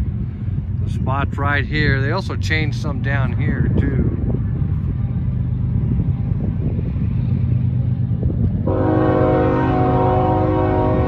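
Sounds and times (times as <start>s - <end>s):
diesel locomotive engine rumble: 0.0s - 11.0s
locomotive air horn: 8.6s - 11.0s.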